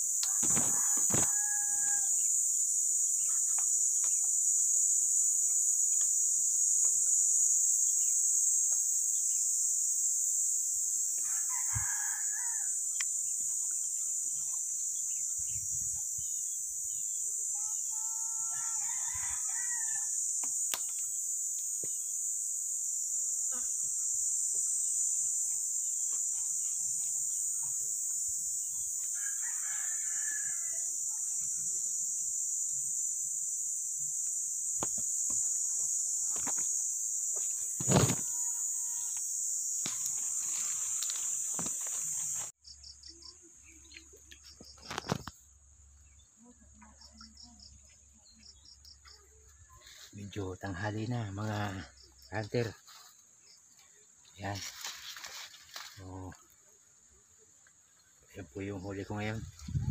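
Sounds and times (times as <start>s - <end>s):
high-pitched insect drone: 0.0s - 59.9s
rooster crowing: 0.2s - 2.3s, 11.2s - 12.8s, 18.3s - 20.2s, 29.1s - 30.9s.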